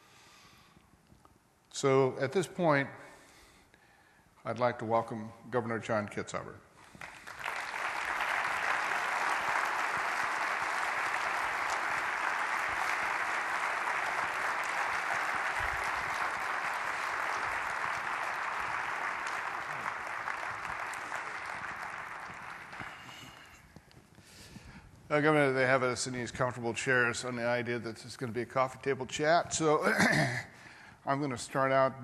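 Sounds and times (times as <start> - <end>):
audience applauding: 6.8 - 23.6.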